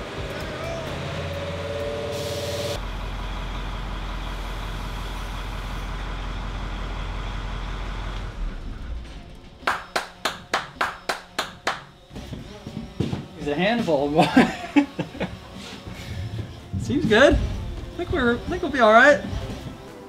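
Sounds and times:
heavy vehicle engine running: 0.0 - 20.0
sharp claps: 9.6 - 12.0.

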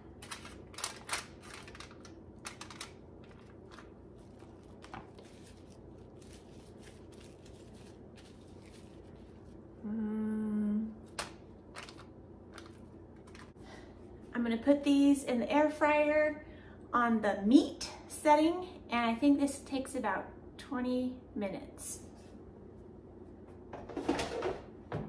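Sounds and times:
hands handling meat and foil: 0.1 - 9.7, 11.1 - 13.6.

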